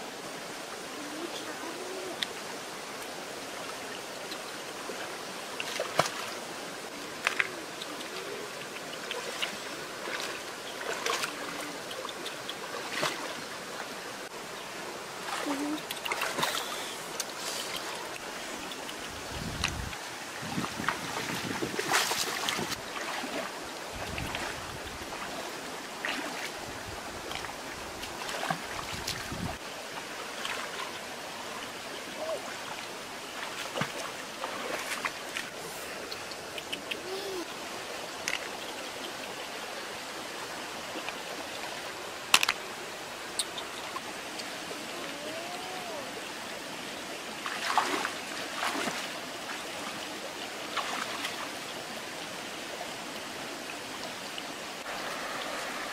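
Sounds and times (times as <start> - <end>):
stream running over stones: 0.0 - 55.9
splashing in water: 5.6 - 6.4, 7.2 - 13.5, 15.2 - 19.0, 19.6 - 24.6, 27.2 - 29.6, 33.4 - 37.2, 47.4 - 49.9, 50.7 - 51.5.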